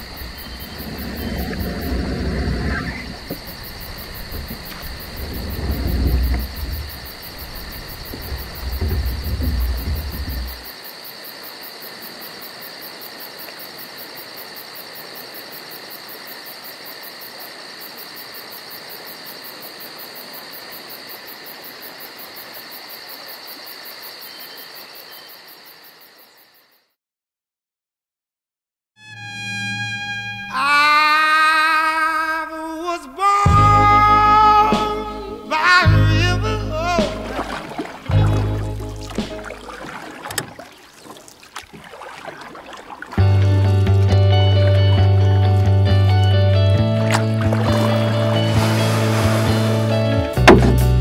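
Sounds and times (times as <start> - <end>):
heavy low rumble: 0.0 - 10.6
insects chirping chorus: 0.0 - 26.9, 30.4 - 51.0.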